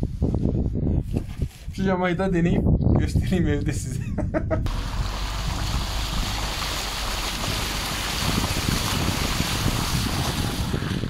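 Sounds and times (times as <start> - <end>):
wind on microphone: 0.0 - 11.0
car tyres splashing through puddle: 4.7 - 11.0.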